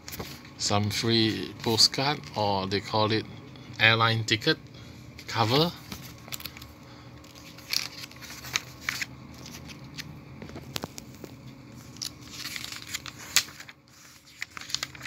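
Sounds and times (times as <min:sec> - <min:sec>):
magazine pages rustling: 0:05.2 - 0:15.0.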